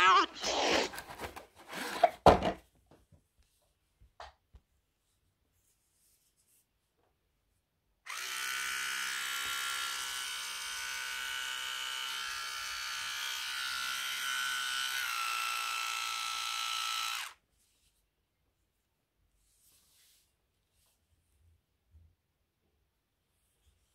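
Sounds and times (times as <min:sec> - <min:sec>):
electric toothbrush buzzing: 0:08.1 - 0:17.4.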